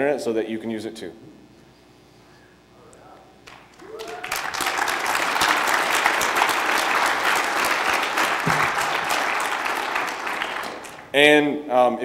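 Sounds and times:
audience applauding: 3.4s - 11.2s.

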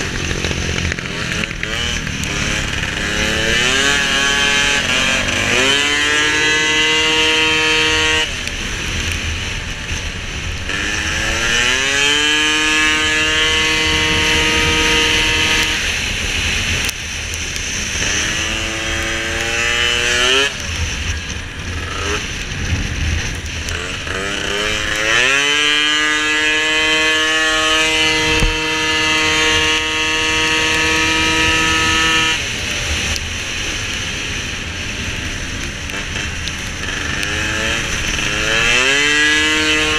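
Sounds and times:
scooter engine revving high: 0.0s - 39.9s
low rumble: 20.6s - 25.8s.

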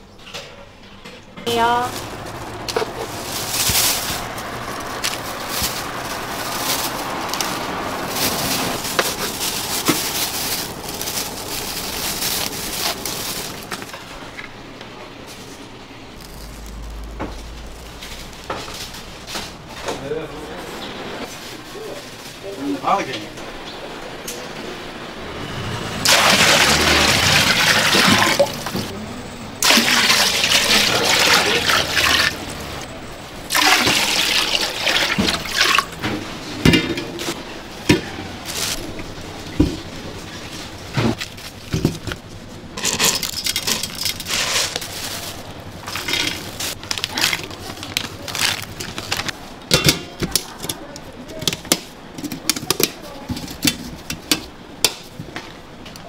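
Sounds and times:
water running and pouring: 26.0s - 28.9s, 29.6s - 32.7s, 33.5s - 36.0s
dishes and utensils clattering: 35.0s - 38.8s, 42.8s - 44.8s.

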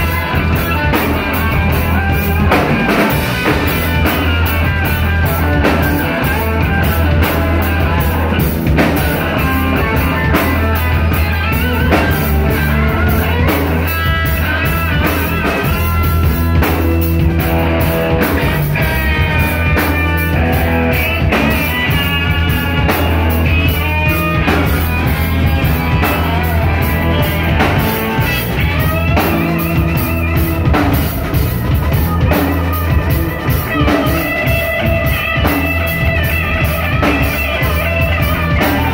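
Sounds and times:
bass guitar: 0.0s - 38.9s
drum kit with cymbals: 0.0s - 38.9s
electric guitar: 0.0s - 38.9s.

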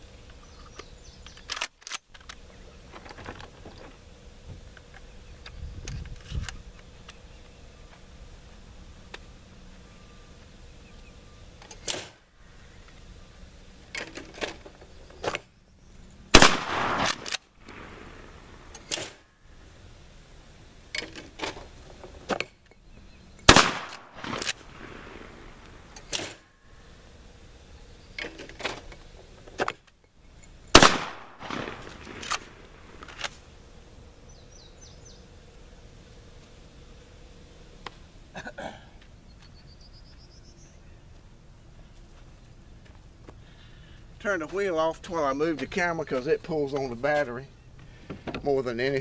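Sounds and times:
shotgun shots with echo: 16.3s - 19.2s, 23.5s - 25.4s, 30.7s - 32.6s.

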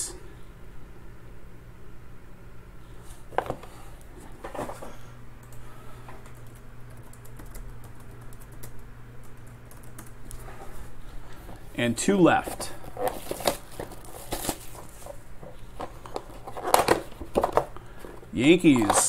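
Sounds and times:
faint steady hum: 0.0s - 19.0s
computer keyboard typing: 6.2s - 10.2s.

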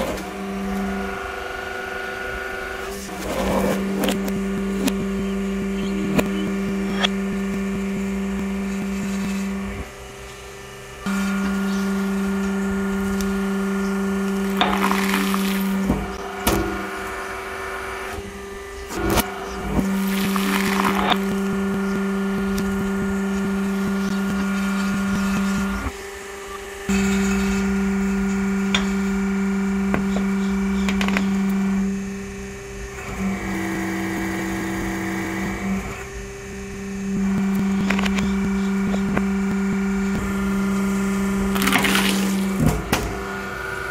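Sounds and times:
hydraulic press motor humming: 0.0s - 43.9s
carrots crunching and splitting: 14.4s - 16.7s, 41.5s - 43.0s.

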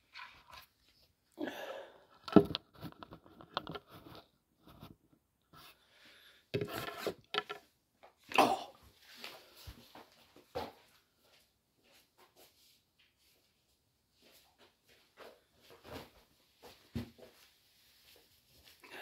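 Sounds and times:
clothing rustle: 11.3s - 19.0s.

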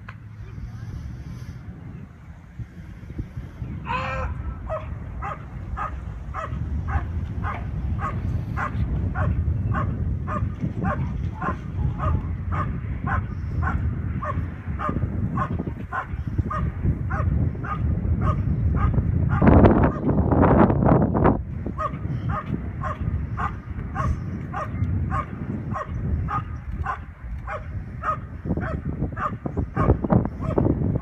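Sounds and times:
low steady rumble: 0.0s - 31.0s
dog barking rhythmically: 4.6s - 20.1s, 21.8s - 30.7s.

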